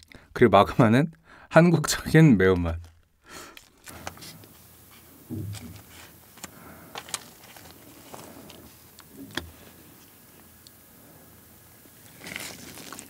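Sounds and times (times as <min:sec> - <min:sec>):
plastic sachet handling noise: 0:02.5 - 0:04.6, 0:05.3 - 0:10.2, 0:11.8 - 0:13.0
low soft thump: 0:05.3 - 0:05.8.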